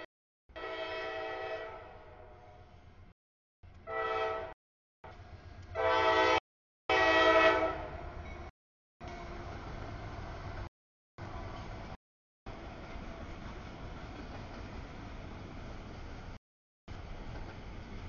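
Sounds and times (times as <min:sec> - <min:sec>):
train air horn blasts: 0:00.0 - 0:02.6, 0:03.8 - 0:04.6, 0:05.7 - 0:08.0.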